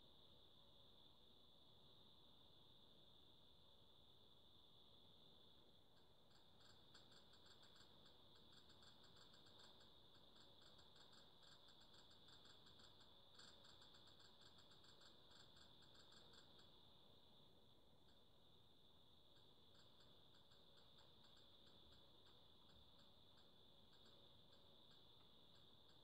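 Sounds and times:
faint high-pitched whine: 0.0 - 26.0
faint rapid clicking: 5.4 - 26.0.

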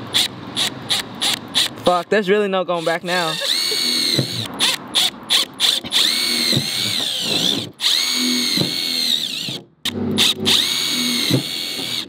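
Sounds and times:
cordless drill whining: 2.8 - 12.0.

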